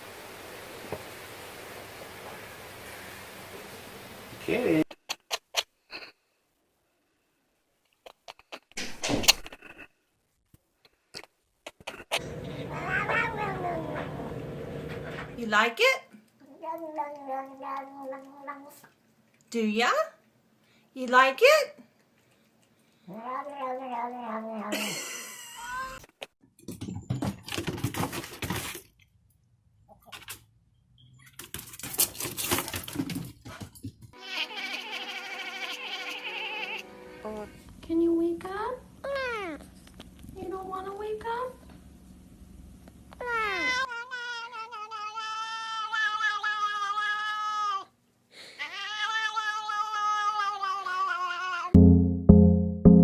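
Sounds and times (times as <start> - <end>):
cat meowing: 12.5 - 14.0, 23.1 - 24.7, 34.2 - 36.8, 43.2 - 47.9, 48.6 - 51.8.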